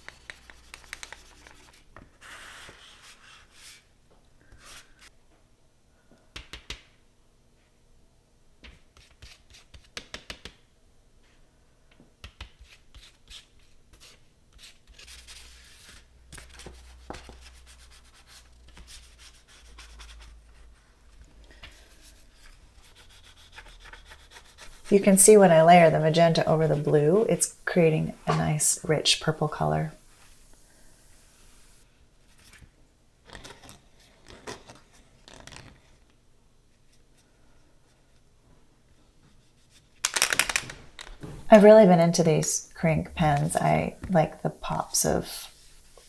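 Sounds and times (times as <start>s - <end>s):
palette knife scraping paint: 0.0s - 3.6s, 22.1s - 25.2s
brush stroking paint on paper: 0.0s - 3.9s, 21.7s - 29.5s, 43.1s - 46.0s.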